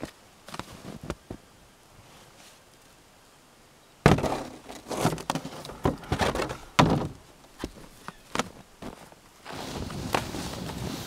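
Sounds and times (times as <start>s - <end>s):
snowshoes crunching in snow: 0.5s - 1.4s, 7.6s - 11.0s
plastic shovel thunks in sled: 4.1s - 7.8s.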